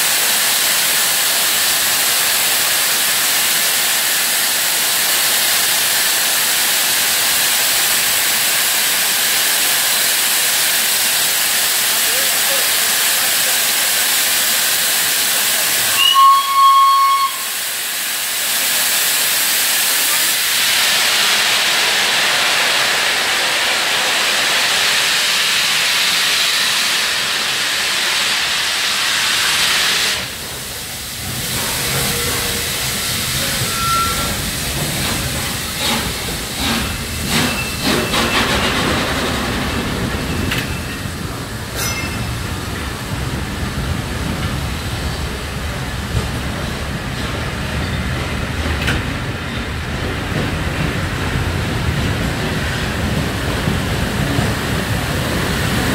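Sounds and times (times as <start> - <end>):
steam locomotive hissing: 0.0 - 55.9
steam whistle blast: 16.0 - 17.6, 33.6 - 34.4
coaches rumbling and clicking: 42.2 - 55.5.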